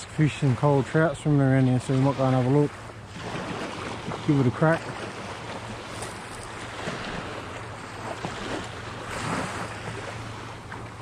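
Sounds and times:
small waves washing on shore: 0:00.0 - 0:11.0.

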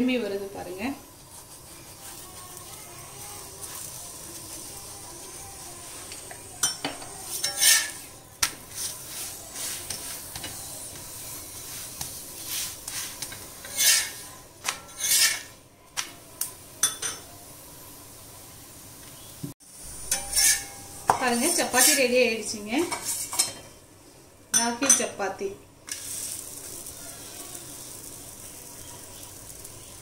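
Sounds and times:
light sizzle: 0:00.0 - 0:30.0
metal spatula scraping griddle: 0:01.3 - 0:15.6, 0:20.1 - 0:23.6, 0:25.9 - 0:30.0.

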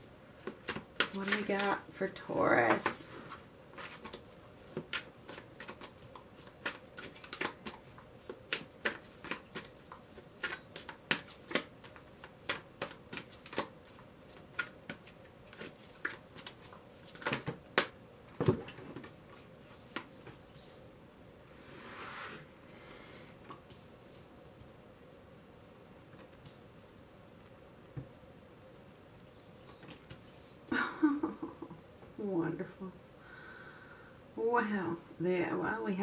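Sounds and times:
cards being shuffled: 0:00.4 - 0:01.8, 0:03.3 - 0:09.8, 0:10.4 - 0:18.0.

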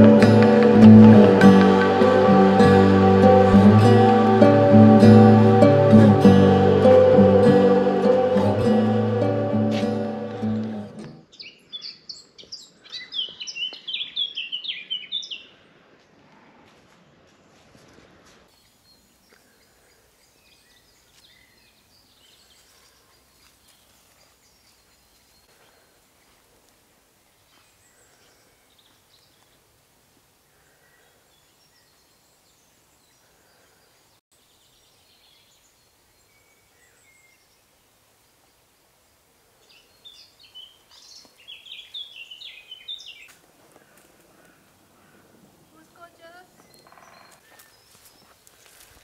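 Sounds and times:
distant birds calling: 0:39.9 - 0:49.0.

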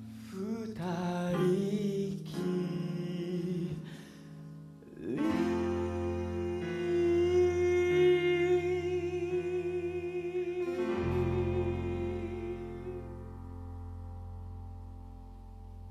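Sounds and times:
man singing with vibrato: 0:00.1 - 0:04.2, 0:04.8 - 0:13.4
instrumental accompaniment: 0:04.2 - 0:15.9.

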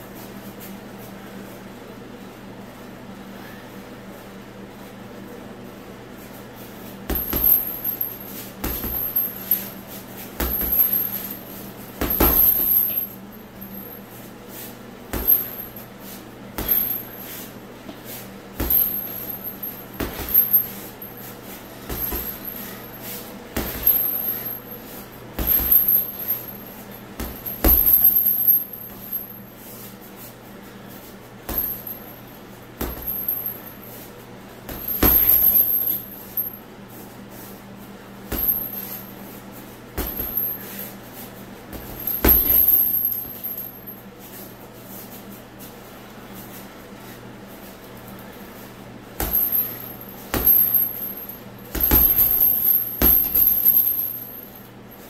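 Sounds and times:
steady low hum: 0:00.0 - 0:55.0
punches thudding on heavy bag: 0:07.0 - 0:09.7, 0:10.3 - 0:13.1, 0:15.1 - 0:15.8, 0:16.5 - 0:17.3, 0:18.5 - 0:22.9, 0:23.5 - 0:29.3, 0:31.4 - 0:32.1, 0:32.8 - 0:33.6, 0:34.6 - 0:36.5, 0:38.3 - 0:39.0, 0:39.9 - 0:40.8, 0:41.7 - 0:43.7, 0:49.2 - 0:54.5.

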